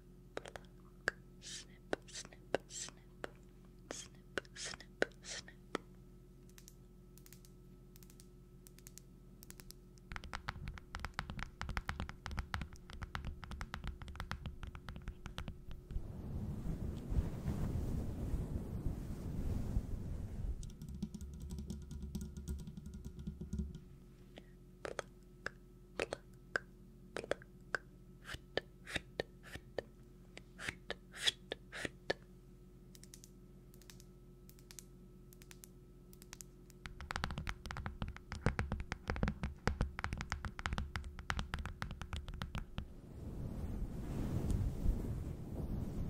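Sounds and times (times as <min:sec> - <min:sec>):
faint steady hum: 0:00.0 - 0:46.0
sharp clicks and taps: 0:06.4 - 0:16.0, 0:20.6 - 0:23.8, 0:32.9 - 0:42.9.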